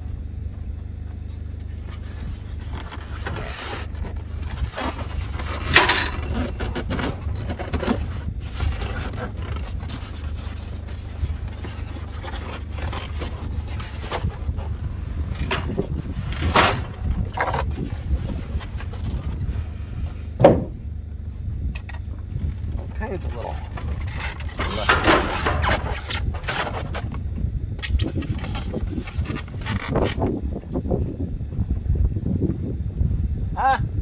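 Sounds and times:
steady low rumble: 0:00.0 - 0:34.0
styrofoam scraping against metal: 0:01.9 - 0:19.5, 0:23.3 - 0:27.1, 0:27.8 - 0:30.3.

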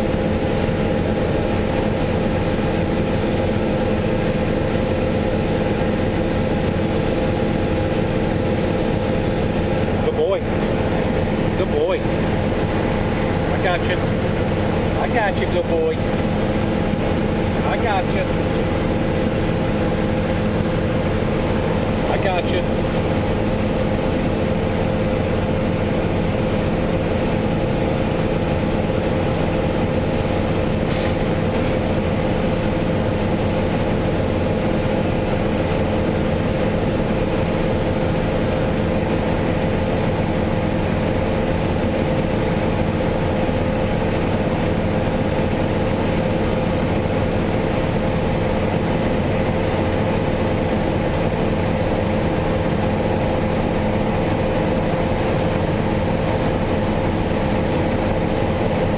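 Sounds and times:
car engine and road noise: 0:06.8 - 0:38.0.

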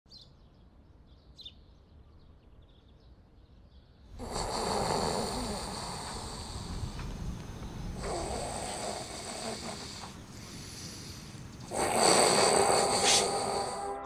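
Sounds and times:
person snoring: 0:04.2 - 0:07.3, 0:07.9 - 0:14.0.

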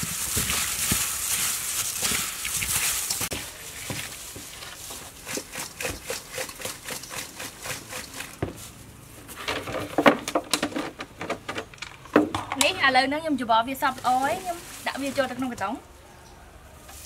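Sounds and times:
fruits mixed in a steel bowl: 0:00.0 - 0:09.4, 0:11.9 - 0:15.9.

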